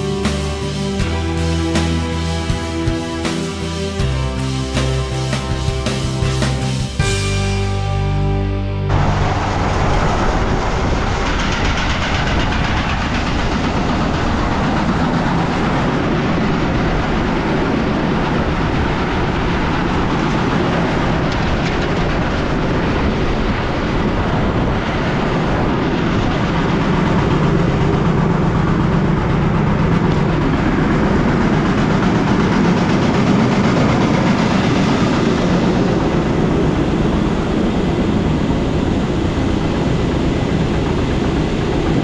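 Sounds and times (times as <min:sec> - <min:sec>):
heavy farm machinery rattling: 0:08.9 - 0:42.0.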